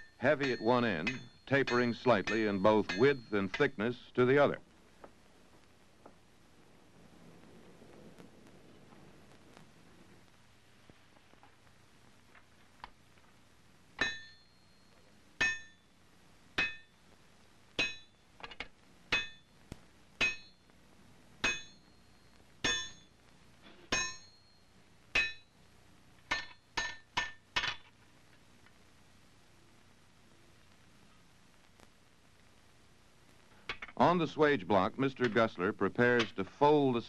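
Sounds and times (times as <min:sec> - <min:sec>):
hammer striking iron on anvil: 0:00.0 - 0:03.8, 0:14.0 - 0:14.5, 0:15.4 - 0:15.8, 0:16.6 - 0:16.9, 0:17.8 - 0:18.2, 0:19.1 - 0:19.5, 0:20.2 - 0:20.6, 0:21.4 - 0:21.9, 0:22.6 - 0:23.1, 0:23.8 - 0:24.4, 0:25.2 - 0:25.5, 0:26.3 - 0:27.8.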